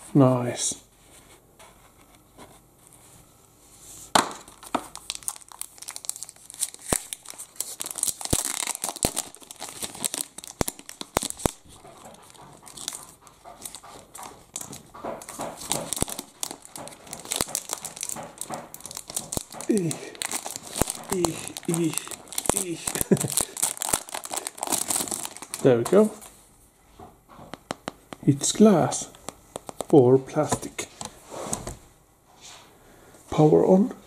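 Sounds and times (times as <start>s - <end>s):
plastic packaging crinkling: 4.2s - 26.4s, 28.5s - 31.2s.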